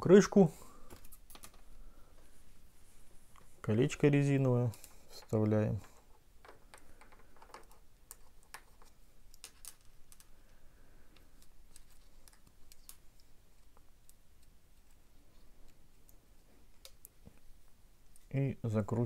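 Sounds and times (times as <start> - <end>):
small clicks of plastic parts: 0.9 - 1.7, 4.6 - 15.0, 15.6 - 17.5.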